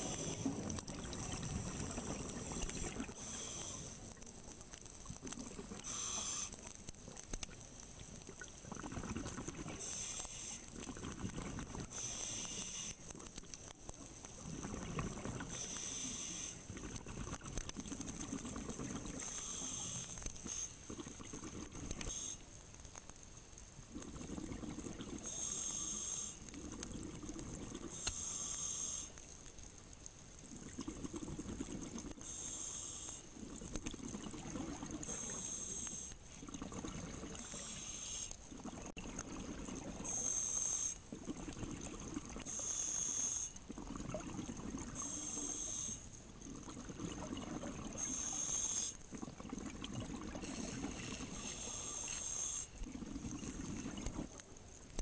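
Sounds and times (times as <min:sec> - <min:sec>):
regulator hiss on inhale: 0:00.0 - 0:00.8, 0:01.9 - 0:04.1, 0:05.8 - 0:06.6, 0:09.7 - 0:10.8, 0:11.9 - 0:13.1, 0:15.5 - 0:16.7, 0:19.2 - 0:20.9, 0:25.2 - 0:26.5, 0:27.9 - 0:29.2, 0:32.2 - 0:33.4, 0:35.0 - 0:36.2, 0:37.4 - 0:38.4, 0:40.1 - 0:41.1, 0:42.4 - 0:43.6, 0:45.0 - 0:46.2, 0:48.0 - 0:49.0, 0:50.4 - 0:52.8
exhaled bubbles burbling: 0:00.0 - 0:03.2, 0:08.3 - 0:09.8, 0:10.7 - 0:12.0, 0:14.4 - 0:15.6, 0:16.7 - 0:19.3, 0:20.8 - 0:22.1, 0:23.9 - 0:25.3, 0:30.5 - 0:32.2, 0:33.4 - 0:35.3, 0:36.3 - 0:37.6, 0:38.5 - 0:40.1, 0:41.1 - 0:42.5, 0:43.7 - 0:45.1, 0:46.4 - 0:48.1, 0:49.1 - 0:51.5, 0:52.8 - 0:54.4.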